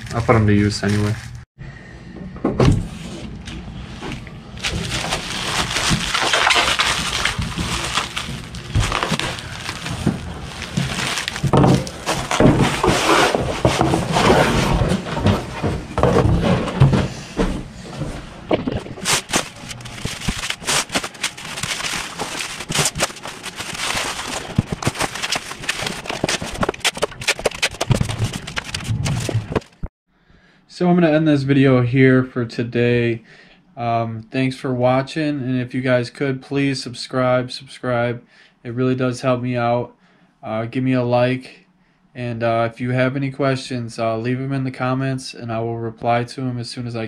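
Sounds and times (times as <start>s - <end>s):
bubble wrap crackling: 0.0s - 1.4s, 4.6s - 13.9s, 19.0s - 29.6s.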